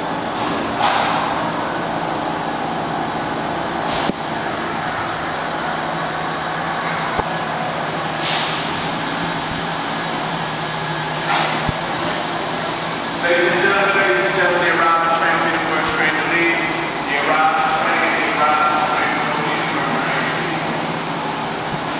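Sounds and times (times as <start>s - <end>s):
subway train hum: 0.0s - 21.9s
brake air hisses: 3.8s - 4.4s, 8.1s - 9.1s.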